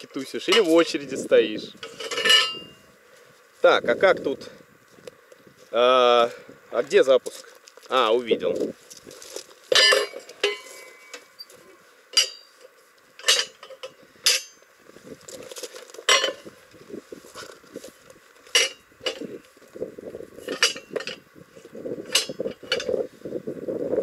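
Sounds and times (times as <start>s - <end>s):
metal parts clinking: 1.8s - 2.8s, 9.1s - 11.3s, 12.1s - 14.6s, 15.4s - 16.5s, 18.4s - 19.4s, 20.4s - 21.2s, 22.0s - 23.0s.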